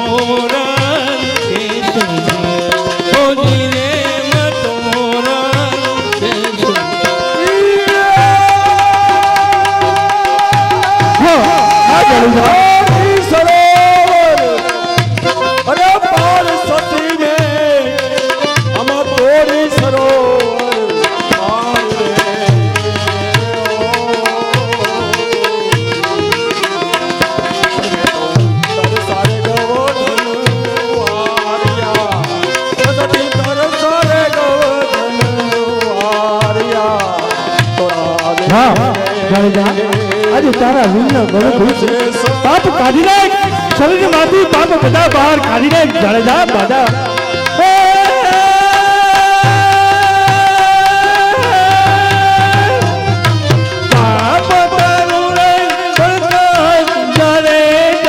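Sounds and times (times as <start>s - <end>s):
hand drum beat: 0.2s - 58.0s.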